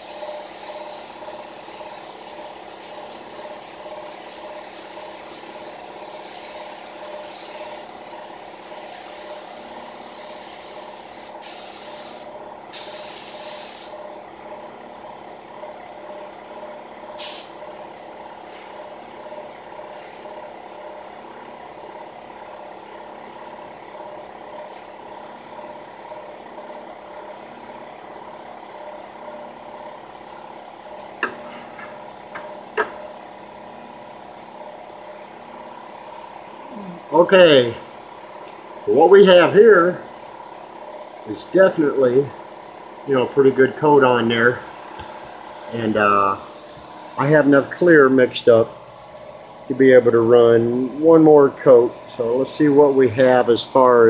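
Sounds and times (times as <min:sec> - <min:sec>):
paint spray gun hissing: 0:00.0 - 0:14.0, 0:17.2 - 0:17.7, 0:22.4 - 0:25.1, 0:44.6 - 0:48.0
steady mechanical hum: 0:00.0 - 0:54.0.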